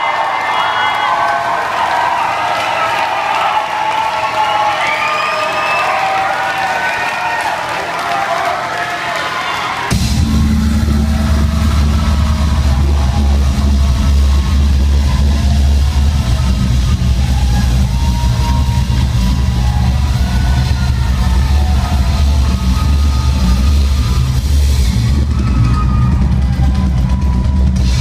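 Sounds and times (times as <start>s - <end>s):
bass guitar and drums: 9.9s - 28.0s.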